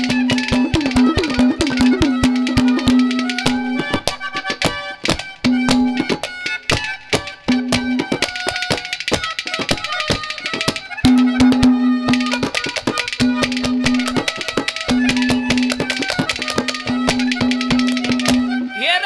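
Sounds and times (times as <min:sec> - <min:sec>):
melody instrument long notes: 0:00.0 - 0:04.1
fast hand drum strokes: 0:00.0 - 0:18.7.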